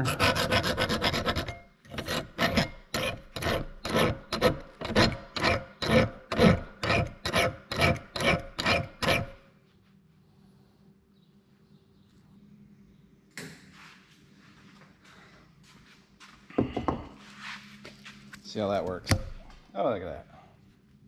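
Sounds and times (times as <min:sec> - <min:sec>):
file rasping on metal blade: 0:00.0 - 0:09.4.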